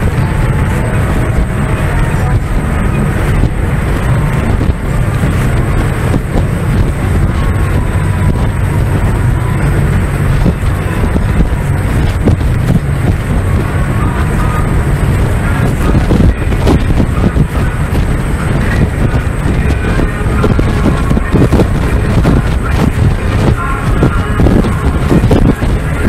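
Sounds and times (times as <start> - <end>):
boat engine rumble: 0.0 - 26.0
wind buffeting microphone: 0.0 - 26.0.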